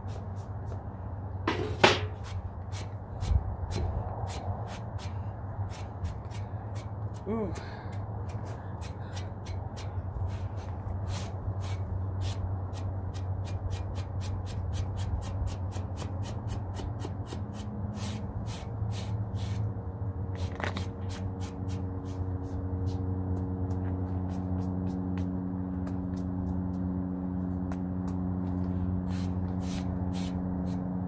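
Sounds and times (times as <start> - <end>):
steady low hum: 0.0 - 31.0
brush scratching on wooden board: 28.8 - 30.8.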